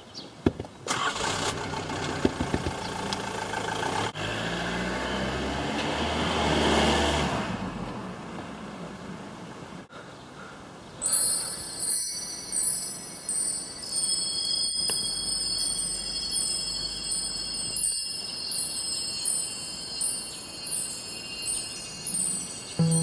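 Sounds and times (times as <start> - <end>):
high ringing chimes: 11.0 - 23.0.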